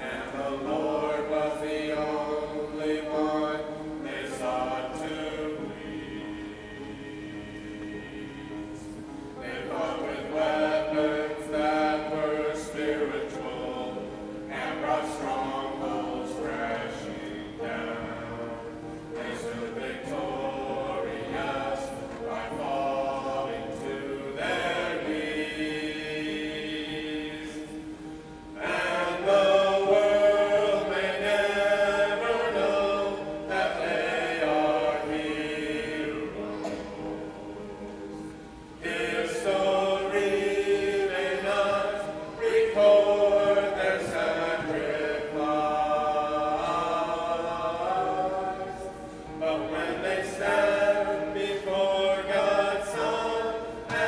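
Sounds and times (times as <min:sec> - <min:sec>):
group singing a cappella: 0:00.0 - 0:54.0.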